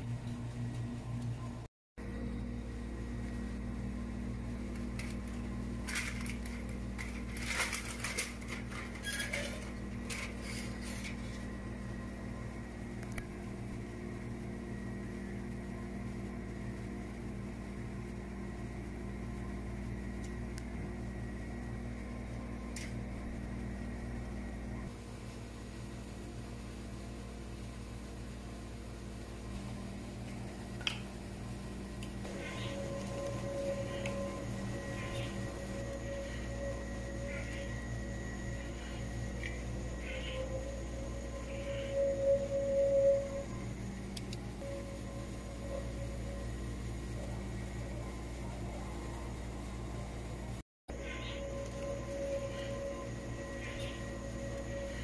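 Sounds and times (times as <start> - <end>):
motor hum: 0.0 - 55.0
aluminium foil crinkling: 4.7 - 11.5.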